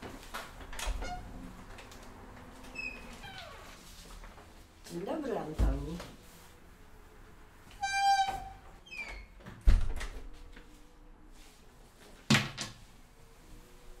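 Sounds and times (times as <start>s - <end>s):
heavy door thump: 9.6s - 10.2s.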